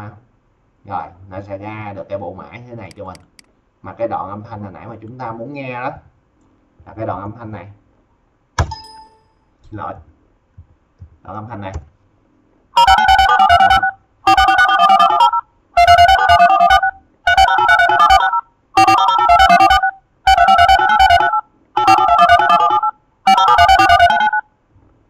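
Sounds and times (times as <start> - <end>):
touch-tone dialing beeps: 12.8 - 24.4.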